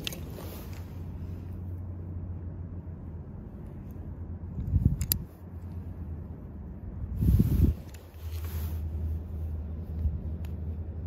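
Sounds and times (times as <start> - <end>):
handling scuffle and clicks: 0.0 - 1.3, 4.6 - 5.8, 7.6 - 9.1
wind rumble on microphone: 3.2 - 11.0.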